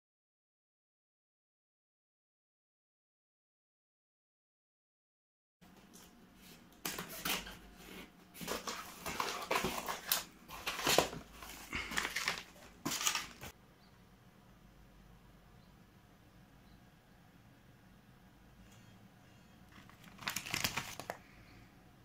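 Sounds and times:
cardboard box rustling: 0:06.9 - 0:13.5
plastic wrapping crinkling: 0:08.4 - 0:13.5, 0:19.7 - 0:21.3.

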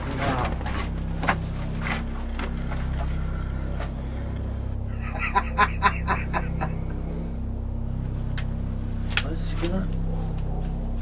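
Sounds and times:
low hum: 0:00.0 - 0:11.0
man laughing: 0:04.9 - 0:07.0.

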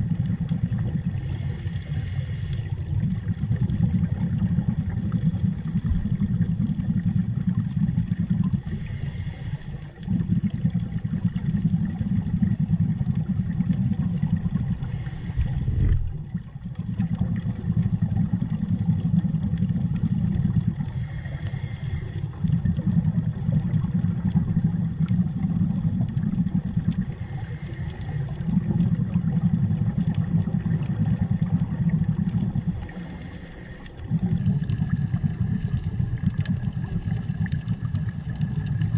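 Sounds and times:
exhaled bubbles rumbling: 0:00.0 - 0:38.9
regulator hiss: 0:01.2 - 0:02.8, 0:08.6 - 0:09.9, 0:14.8 - 0:16.0, 0:20.9 - 0:22.4, 0:27.1 - 0:28.4, 0:32.7 - 0:35.8.

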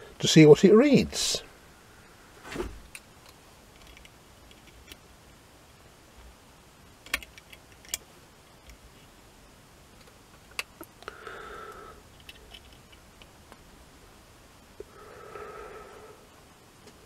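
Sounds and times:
soft breath-like rush: 0:11.0 - 0:12.1, 0:14.8 - 0:16.4.

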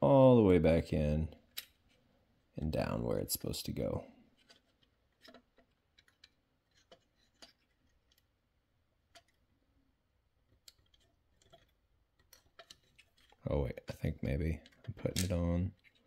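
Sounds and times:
faint plastic and metal clicks: 0:04.3 - 0:08.3, 0:09.0 - 0:09.4, 0:10.5 - 0:13.5, 0:14.2 - 0:16.0.

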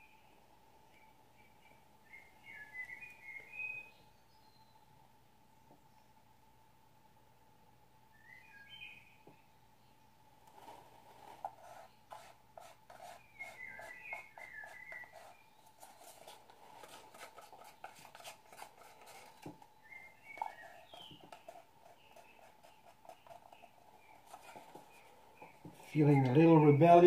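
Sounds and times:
bird chirps: 0:00.9 - 0:04.8, 0:08.1 - 0:09.5, 0:13.0 - 0:16.1, 0:19.1 - 0:27.0
plastic cup clicking and scraping: 0:11.4 - 0:24.8.

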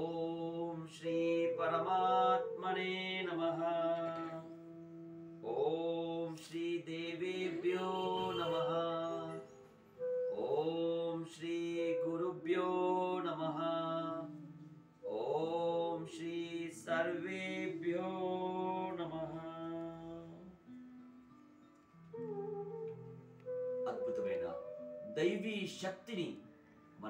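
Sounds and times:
man chanting: 0:00.0 - 0:04.7, 0:05.4 - 0:09.7, 0:10.3 - 0:20.5.

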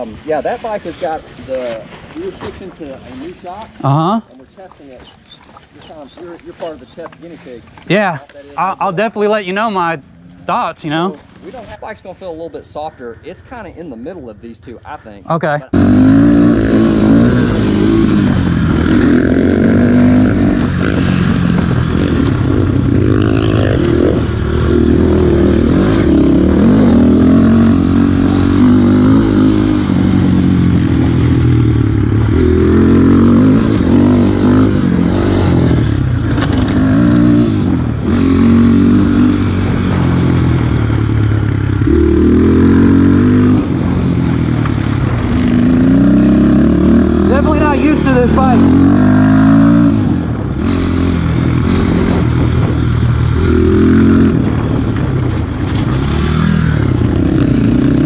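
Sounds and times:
dirt bike engine revving: 0:15.7 - 0:58.0.

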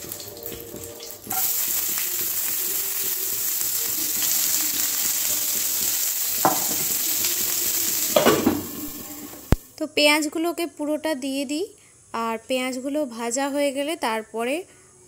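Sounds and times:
onions sizzling in hot oil: 0:00.0 - 0:09.7.

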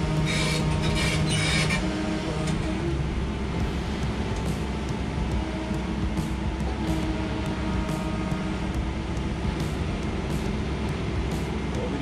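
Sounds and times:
excavator diesel engine running: 0:00.0 - 0:12.0
short high squeaks: 0:00.3 - 0:01.8.

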